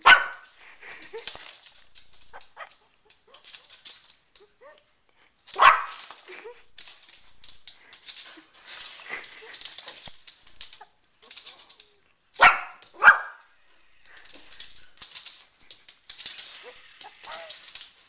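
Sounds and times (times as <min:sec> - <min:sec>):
small dog barking: 0:00.0 - 0:00.4, 0:05.6 - 0:06.0, 0:12.4 - 0:13.5
faint scratching and ticking: 0:12.8 - 0:18.0.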